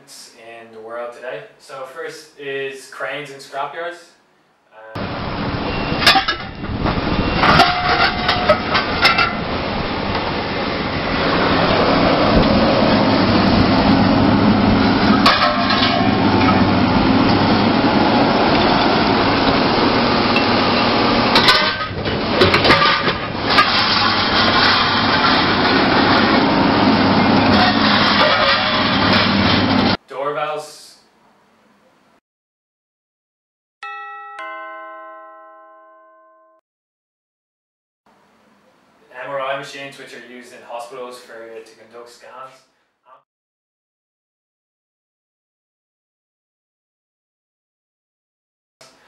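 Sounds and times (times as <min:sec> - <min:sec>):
scrap metal clanking and crashing: 0:05.8 - 0:09.5, 0:15.1 - 0:16.8, 0:20.3 - 0:30.0
machine engine running: 0:08.5 - 0:30.0.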